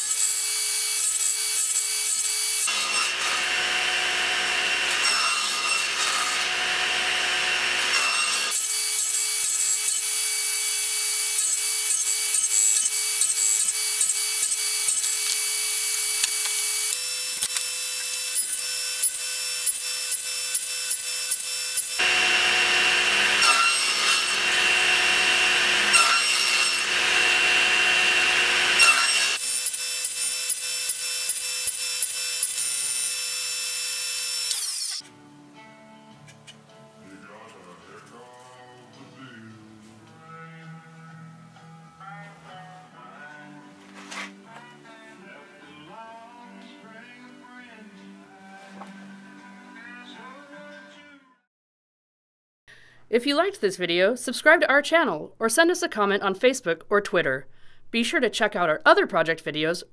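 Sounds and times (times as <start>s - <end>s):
table saw cutting wood: 0.0s - 35.1s.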